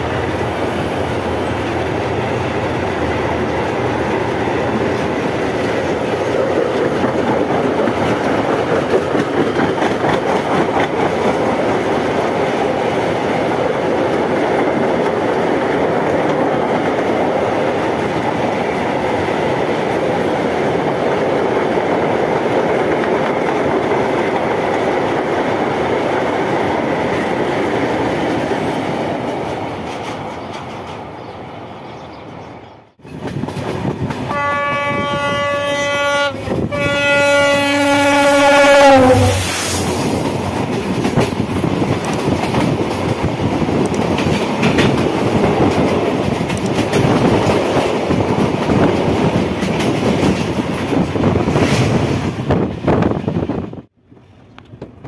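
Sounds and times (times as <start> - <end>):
freight train rumbling past: 0.0 - 55.0
wheels clacking over rail joints: 1.7 - 31.4, 40.0 - 52.0.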